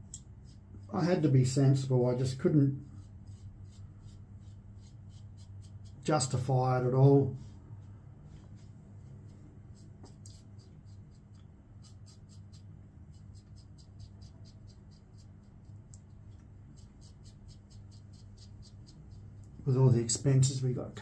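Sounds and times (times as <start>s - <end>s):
razor scraping stubble: 0.4s - 6.4s, 9.1s - 19.6s.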